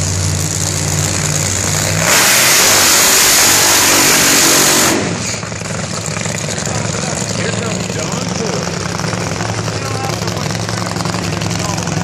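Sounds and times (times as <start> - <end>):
dragster engine idling: 0.0 - 2.1, 3.6 - 12.0
engine revving full throttle: 0.0 - 12.0.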